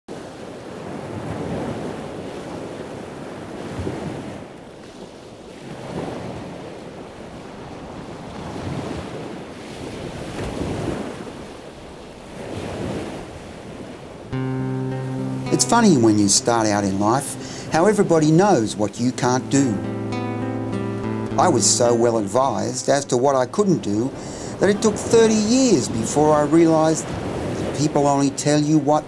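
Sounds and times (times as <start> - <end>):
ocean waves washing in: 0.1 - 29.0.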